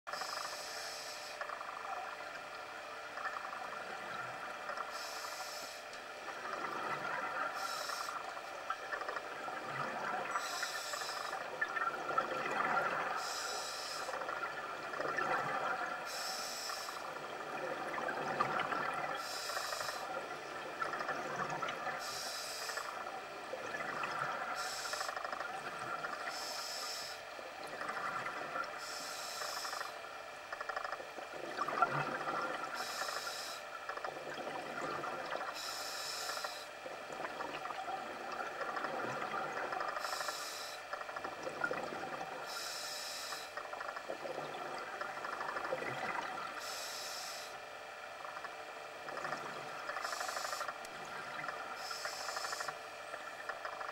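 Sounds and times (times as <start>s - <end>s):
exhaled air bubbling: 0.1s - 53.9s
regulator inhalation hiss: 0.2s - 1.4s, 4.9s - 5.8s, 7.5s - 8.2s, 10.4s - 11.5s, 13.2s - 14.2s, 16.1s - 17.1s, 19.2s - 20.2s, 22.0s - 23.1s, 24.6s - 25.2s, 26.2s - 27.3s, 28.8s - 30.0s, 32.8s - 33.7s, 35.6s - 36.7s, 40.0s - 40.8s, 42.4s - 43.6s, 46.6s - 47.6s, 50.0s - 50.8s, 51.4s - 52.8s.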